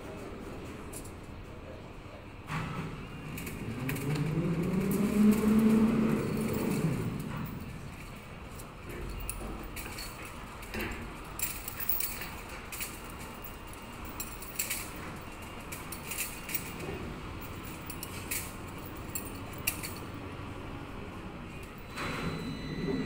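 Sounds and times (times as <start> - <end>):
metal rebar clinking: 3.4 - 20.2.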